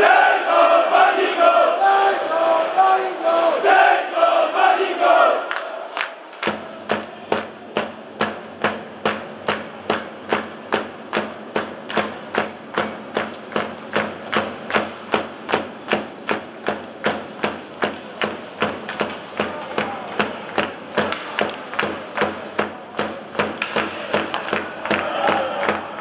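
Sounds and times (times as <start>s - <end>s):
drum beating: 6.4s - 26.0s.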